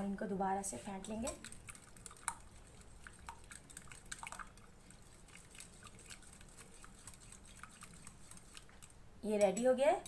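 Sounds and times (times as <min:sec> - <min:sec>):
liquid sloshing: 0:00.8 - 0:09.0
utensil clicking against bowl: 0:01.2 - 0:02.4.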